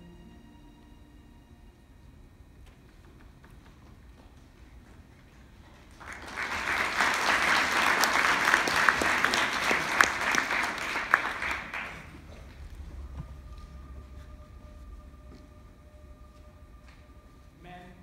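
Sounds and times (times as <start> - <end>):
audience applauding: 5.6 - 13.1.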